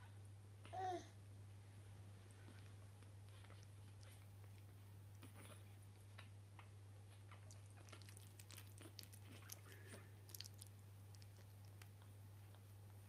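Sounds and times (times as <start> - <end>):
steady low hum: 0.0 - 13.0
puppies mouthing wet clicks: 3.3 - 12.6.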